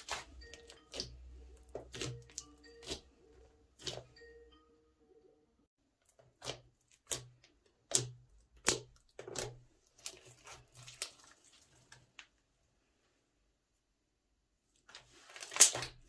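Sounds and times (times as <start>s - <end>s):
slime squelching and popping: 0.0s - 3.1s, 6.0s - 12.1s, 15.3s - 16.0s.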